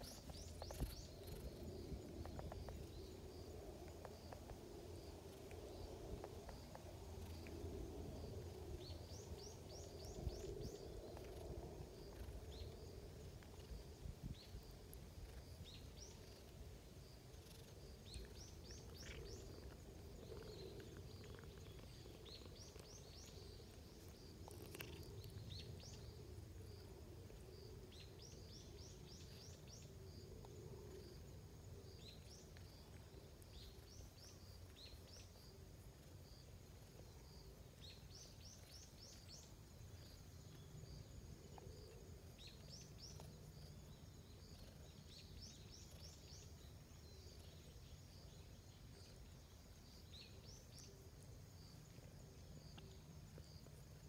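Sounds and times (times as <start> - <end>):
faint bird chirps: 0.0 - 3.2.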